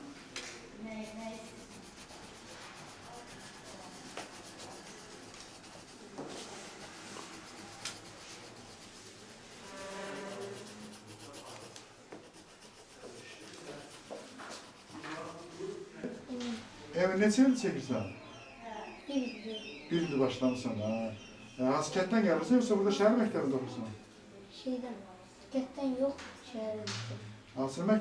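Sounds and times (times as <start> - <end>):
pencil scratching on paper: 0.9 - 15.9.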